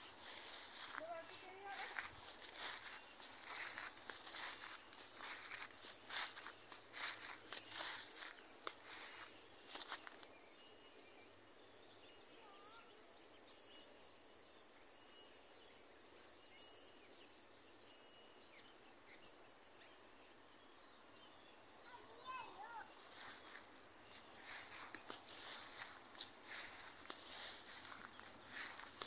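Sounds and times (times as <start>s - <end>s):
footsteps on grass: 0.0s - 10.3s, 21.9s - 29.0s
high-pitched insect drone: 0.0s - 11.4s, 21.4s - 29.0s.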